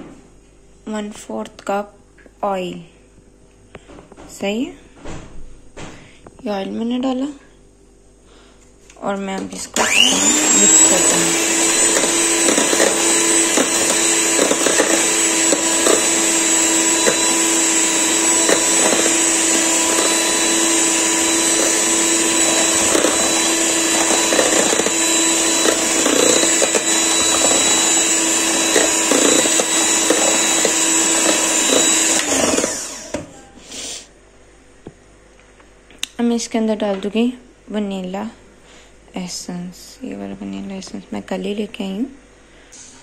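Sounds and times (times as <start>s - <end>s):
electric hand mixer whining: 9.5s - 33.4s.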